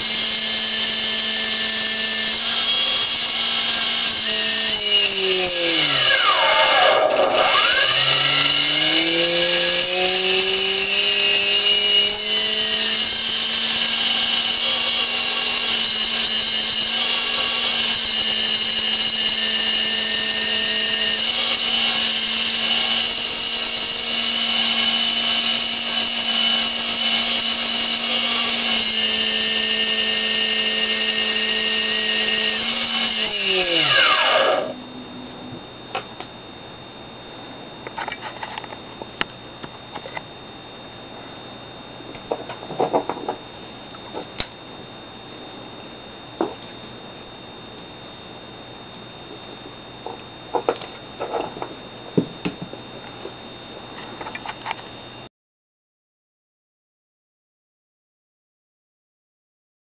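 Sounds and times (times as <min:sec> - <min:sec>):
electric motor whine: 0:00.0 - 0:37.0
low hum: 0:34.4 - 0:37.9.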